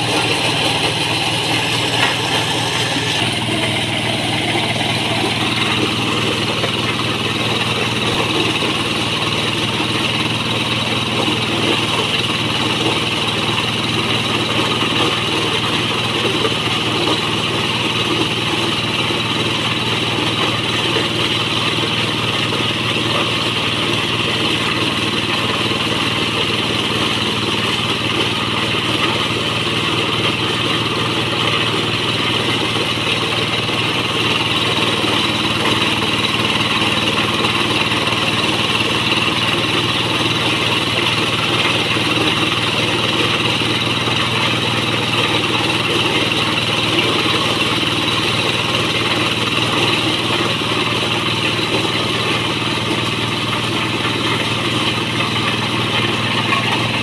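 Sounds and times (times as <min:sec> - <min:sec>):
corn sheller rattling hiss: 0:00.0 - 0:08.9
diesel engine running: 0:00.0 - 0:57.0.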